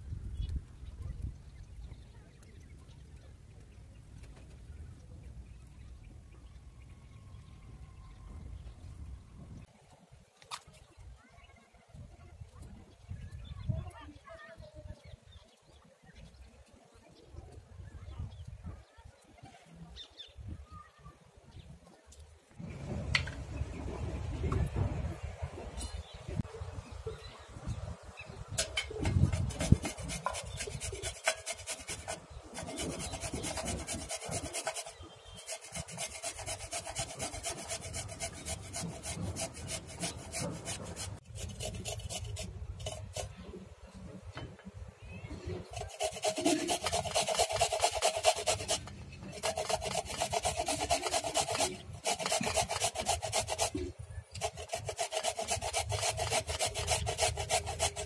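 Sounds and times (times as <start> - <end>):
root being rasped: 28.6 - 43.6, 45.6 - 58.0.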